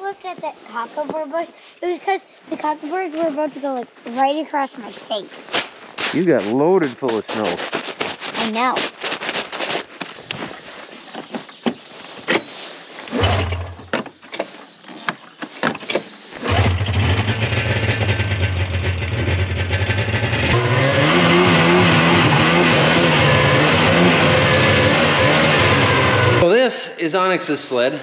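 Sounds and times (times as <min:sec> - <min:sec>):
snowmobile engine running: 0:16.4 - 0:26.6.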